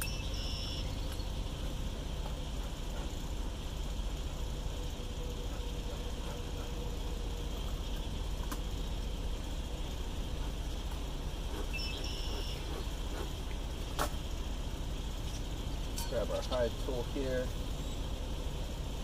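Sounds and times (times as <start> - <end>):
smoker bellows squeak: 0.0 - 1.5, 11.6 - 12.9
insect hiss: 0.0 - 19.0
low rumble: 0.0 - 19.0.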